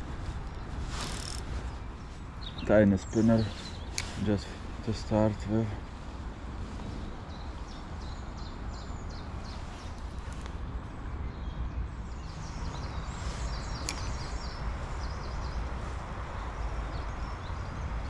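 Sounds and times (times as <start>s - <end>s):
sharp click: 13.8s - 14.2s.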